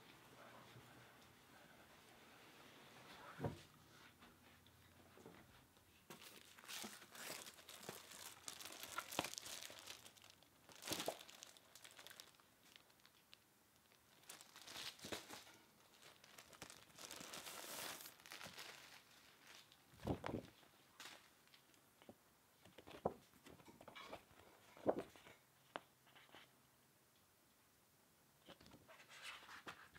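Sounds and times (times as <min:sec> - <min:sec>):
plastic wrapping crinkling: 0:06.1 - 0:21.8.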